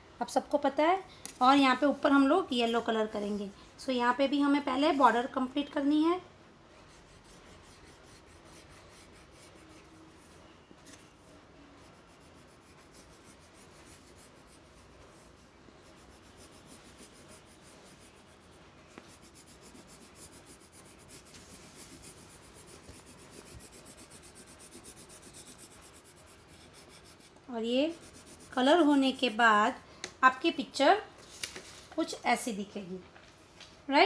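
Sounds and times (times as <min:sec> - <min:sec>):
colour pencil scratching on paper: 0:06.8 - 0:10.4, 0:11.8 - 0:29.3.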